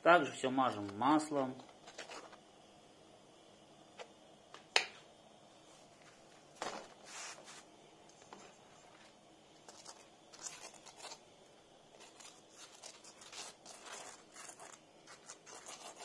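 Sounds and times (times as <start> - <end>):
fork scraping crisp bread: 9.6 - 11.2, 11.9 - 16.0.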